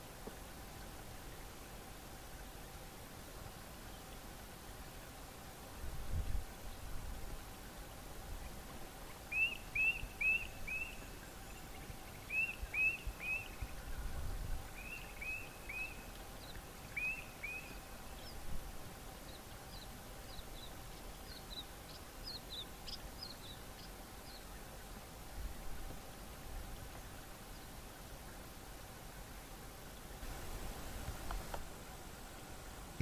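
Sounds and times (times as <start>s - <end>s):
faint steady hum: 0.0s - 33.0s
birds calling: 8.4s - 18.4s.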